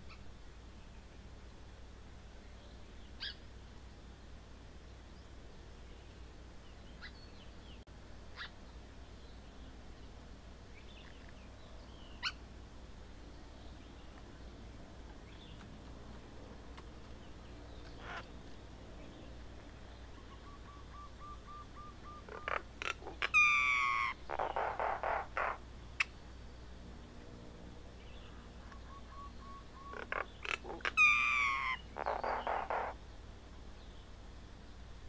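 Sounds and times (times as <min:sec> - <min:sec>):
myna bird calling: 0:03.0 - 0:03.4, 0:06.9 - 0:08.6, 0:10.8 - 0:12.4, 0:17.1 - 0:19.3, 0:19.9 - 0:26.3, 0:28.0 - 0:33.2.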